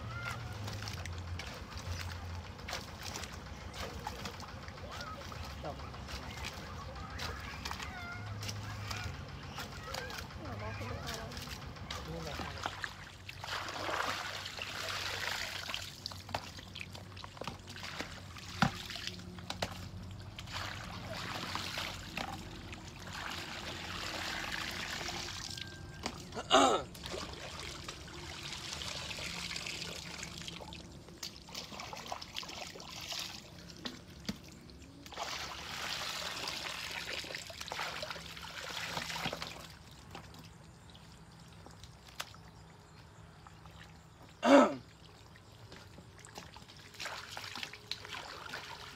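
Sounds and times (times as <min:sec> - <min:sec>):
muddy water splashing: 0:00.0 - 0:48.9.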